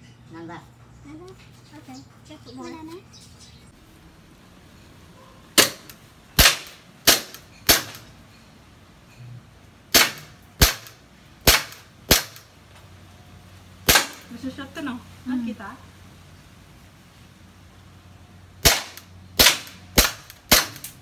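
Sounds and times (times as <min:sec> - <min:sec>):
toy pistol cracks: 0:18.6 - 0:21.0.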